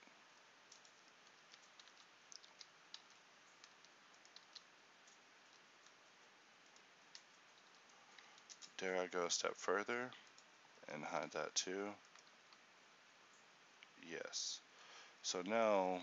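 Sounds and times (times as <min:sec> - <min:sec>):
low hiss: 0:00.0 - 0:16.0.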